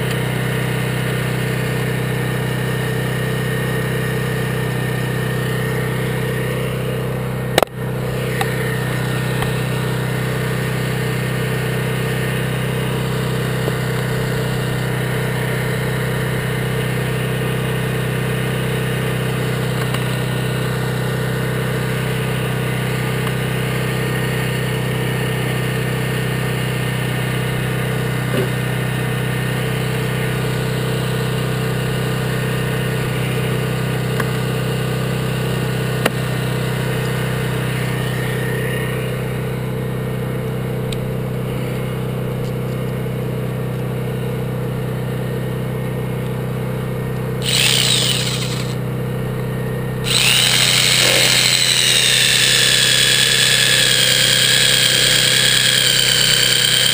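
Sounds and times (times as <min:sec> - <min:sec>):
power tool whining: 0:00.0 - 0:17.3, 0:47.4 - 0:56.9
engine drone: 0:00.0 - 0:42.8, 0:46.7 - 0:56.9
gear clicking: 0:47.4 - 0:48.8, 0:50.1 - 0:56.9.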